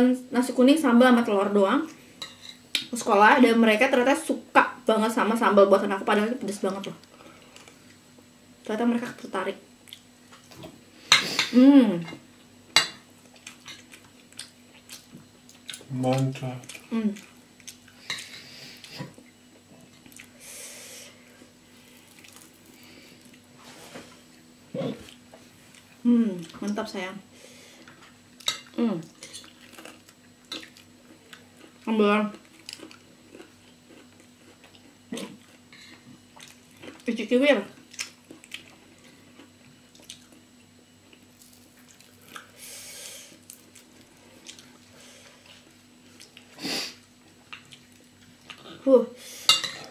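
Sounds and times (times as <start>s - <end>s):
steady low hum: 0.0s - 49.9s
eating and cutlery sounds: 9.9s - 20.3s, 27.8s - 40.4s, 47.4s - 49.9s
people chewing: 13.2s - 20.6s, 21.8s - 24.0s, 27.8s - 37.2s, 37.8s - 40.4s, 41.0s - 48.9s
person breathing hiss: 20.4s - 21.3s, 42.6s - 43.4s, 46.6s - 47.0s.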